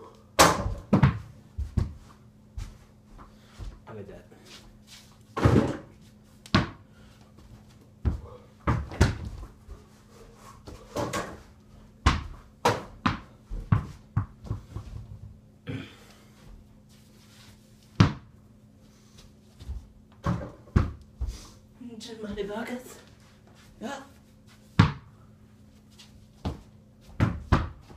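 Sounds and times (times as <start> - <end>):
basketball bouncing on floor: 0.4 - 2.0, 6.5 - 6.8, 8.0 - 9.5, 12.0 - 15.0, 18.0 - 18.3, 20.1 - 21.0, 24.8 - 25.1, 26.4 - 27.9.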